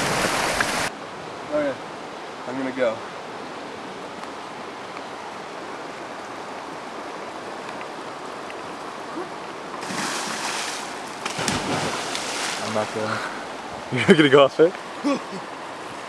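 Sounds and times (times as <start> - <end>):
steady outdoor hiss: 0.0 - 16.0
person splashing into water: 9.8 - 12.7.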